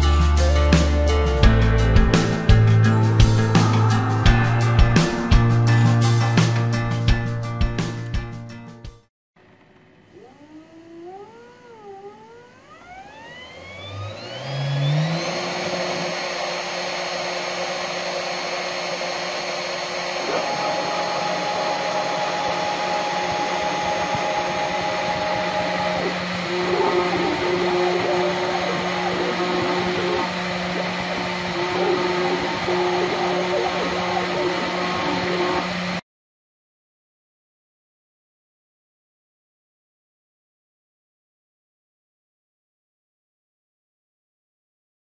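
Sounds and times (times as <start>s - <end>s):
milling spindle motor whine: 9.4s - 36.0s
drill bit cutting board: 10.1s - 36.0s.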